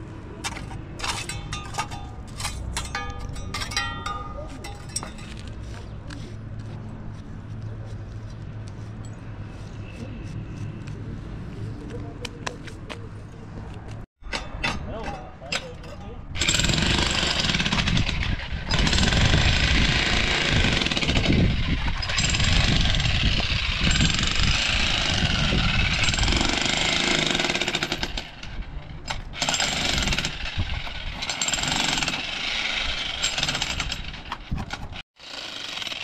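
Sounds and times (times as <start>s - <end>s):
jackhammer hammering: 16.4s - 36.0s.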